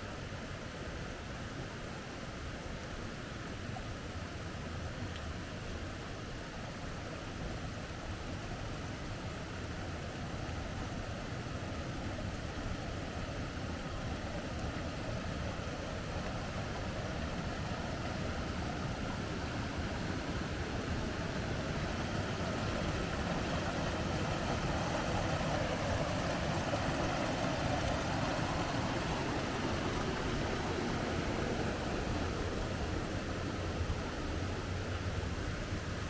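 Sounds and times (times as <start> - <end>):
running water rushing: 0.0 - 36.0.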